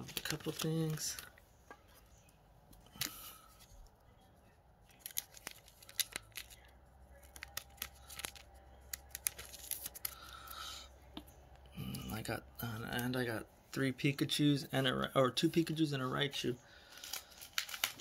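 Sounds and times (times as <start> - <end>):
rustling of card sleeves: 0.0 - 1.3, 16.9 - 18.0
plastic card sleeves clicking: 7.2 - 10.1.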